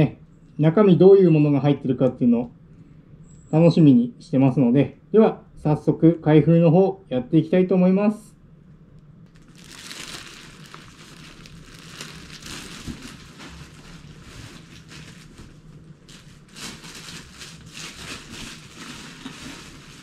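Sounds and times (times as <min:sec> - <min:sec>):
cloth bag and packaging rustling: 0:09.4 - 0:20.0.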